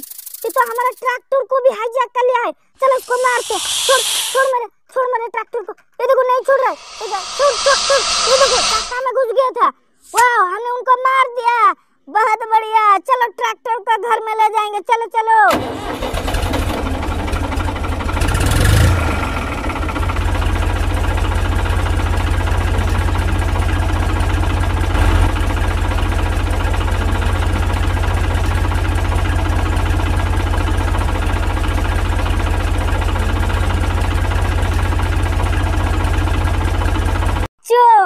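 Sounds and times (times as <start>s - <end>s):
tractor engine chugging: 15.6s - 37.5s.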